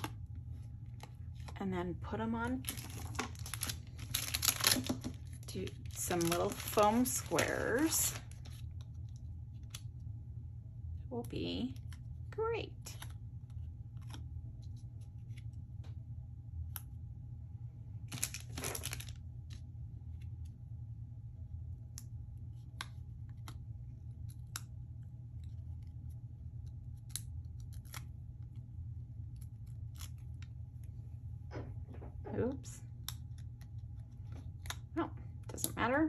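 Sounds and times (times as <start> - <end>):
steady low hum: 0.0 - 36.0
paper and plastic crinkling: 2.4 - 8.8, 18.1 - 19.6
paper rustle: 2.6 - 8.6, 18.1 - 19.6.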